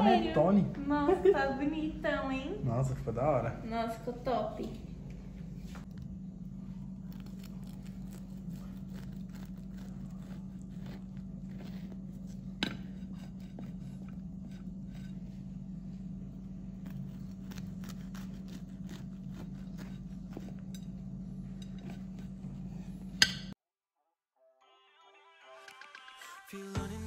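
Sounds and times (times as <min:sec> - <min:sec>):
low hum: 0:00.0 - 0:23.6
knife sawing through bread crust: 0:07.1 - 0:15.5, 0:16.7 - 0:20.8.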